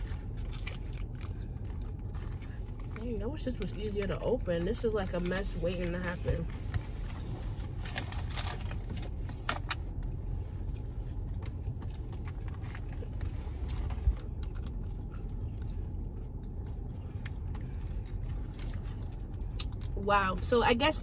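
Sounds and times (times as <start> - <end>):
person chewing: 0.0 - 3.0, 10.0 - 20.0
car cabin rumble: 0.0 - 21.0.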